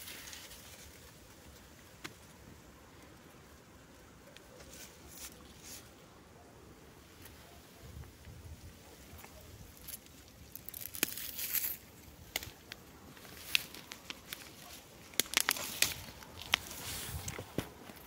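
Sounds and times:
leaves and twigs rustling underfoot: 0.0 - 18.0
twigs snapping: 9.2 - 18.0.

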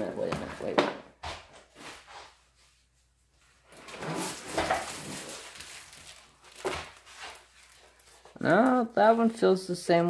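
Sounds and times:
canvas rustling by hand: 1.8 - 9.4.

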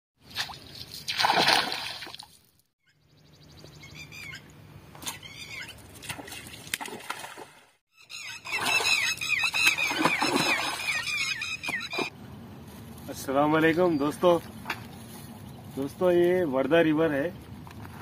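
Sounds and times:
water splashing: 0.2 - 2.5, 5.8 - 7.8, 8.5 - 11.2.

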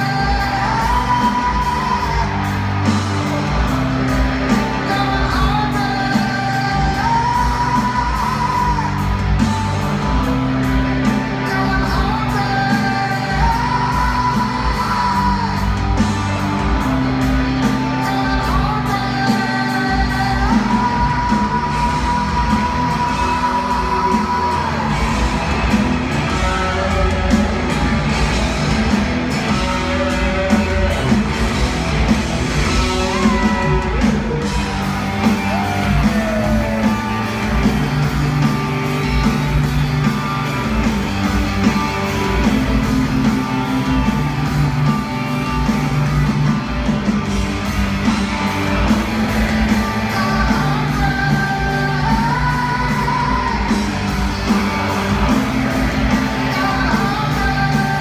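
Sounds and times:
man singing: 0.0 - 2.4, 4.6 - 9.2, 11.3 - 15.8, 17.8 - 25.3, 49.7 - 54.0, 56.1 - 58.0
live rock band playing: 0.0 - 58.0.

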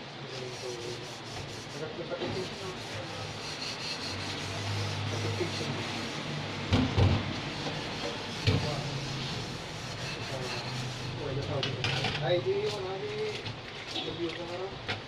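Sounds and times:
sponge scrubbing metal pot: 0.2 - 6.7, 7.4 - 11.4.

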